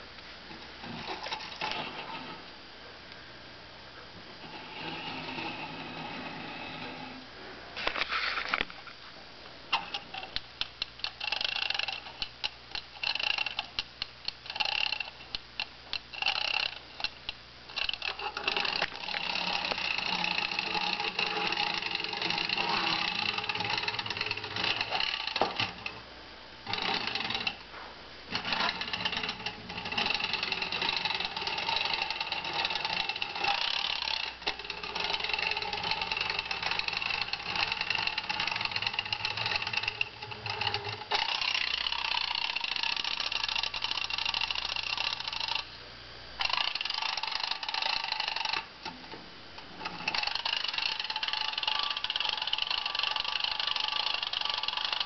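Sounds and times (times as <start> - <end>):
clockwork mechanism whirring rattle: 0.8 - 2.4, 4.4 - 7.2, 9.7 - 45.8, 46.4 - 55.0
wind-up toy ratchet clicking: 9.7 - 26.0, 26.6 - 27.6, 28.3 - 45.7, 46.4 - 48.7, 49.8 - 55.0.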